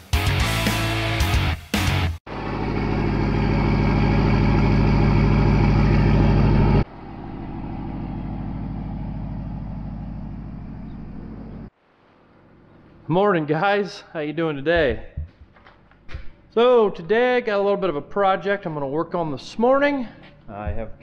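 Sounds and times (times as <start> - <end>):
electric guitar rock music: 0.0 - 2.2
pickup truck engine idling: 2.3 - 11.7.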